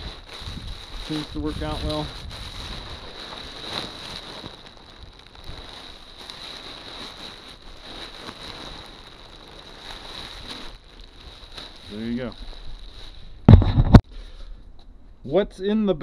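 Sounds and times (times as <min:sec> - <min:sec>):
wind on microphone: 0:00.0 - 0:03.8
kite fabric rustling: 0:00.0 - 0:14.4.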